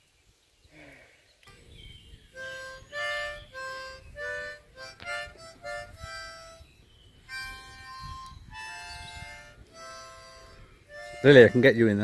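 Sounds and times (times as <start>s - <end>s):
slow tune of held notes: 2.4s - 11.8s.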